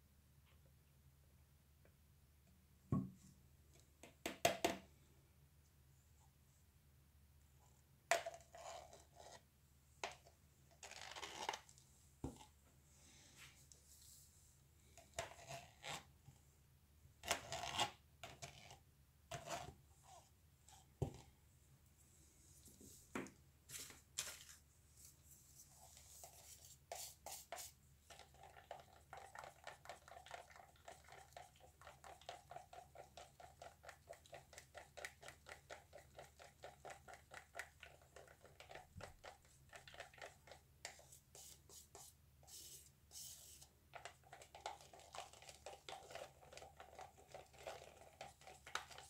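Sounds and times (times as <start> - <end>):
taps and clicks on plastic cups: 4.0 - 4.8
stick stirring paint in cup: 8.2 - 9.5, 25.6 - 49.0.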